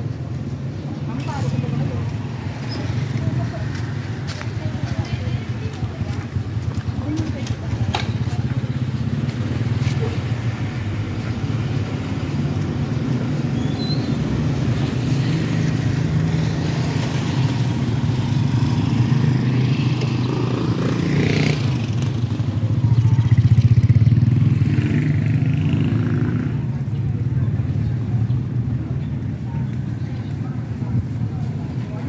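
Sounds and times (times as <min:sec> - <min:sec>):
motorcycle engines humming: 0:00.0 - 0:32.0.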